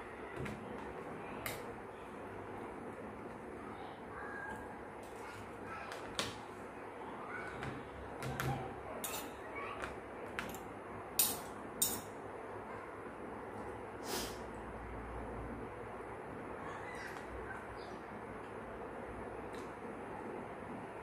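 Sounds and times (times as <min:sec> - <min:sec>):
steady room hiss: 0:08.8 - 0:21.0.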